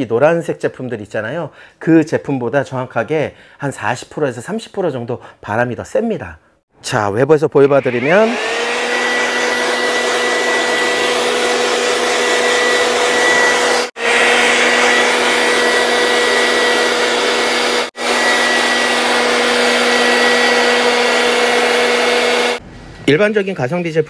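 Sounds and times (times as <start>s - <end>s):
handheld blower whining: 7.7s - 22.6s.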